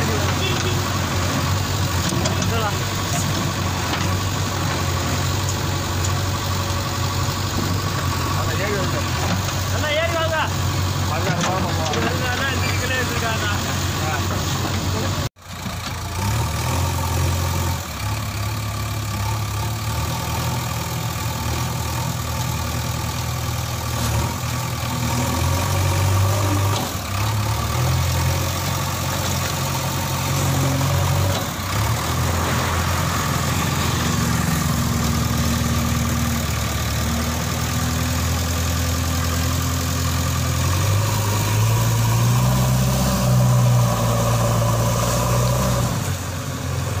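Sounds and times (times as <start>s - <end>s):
diesel engine under load: 0.0s - 47.0s.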